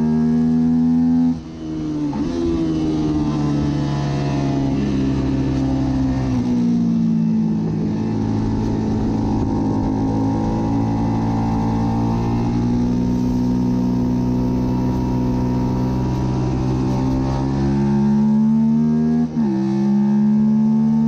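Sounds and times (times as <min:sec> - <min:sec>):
motorcycle engine revving high: 0:00.0 - 0:21.0.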